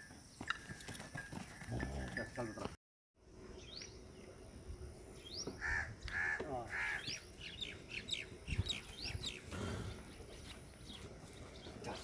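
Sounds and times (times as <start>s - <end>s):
small birds chirping: 5.1s - 12.0s
crow cawing: 5.6s - 7.1s.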